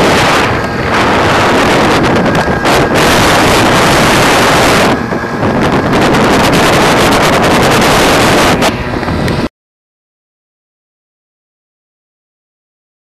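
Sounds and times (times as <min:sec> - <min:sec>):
scooter engine running: 0:00.0 - 0:09.5
wind buffeting microphone: 0:00.0 - 0:09.5.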